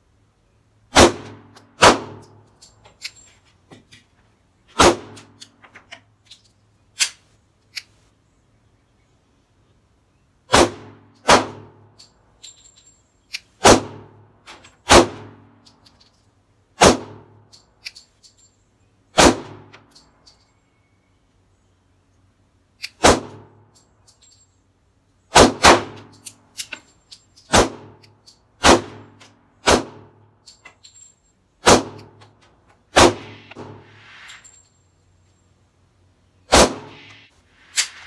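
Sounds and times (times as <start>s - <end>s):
pistol shots: 0.9s - 2.2s, 4.8s - 5.4s, 10.5s - 11.8s, 14.9s - 15.4s, 16.8s - 17.3s, 19.2s - 19.7s, 25.3s - 26.1s, 27.5s - 28.0s, 28.6s - 30.1s, 31.6s - 32.1s, 32.9s - 33.9s, 36.5s - 37.2s.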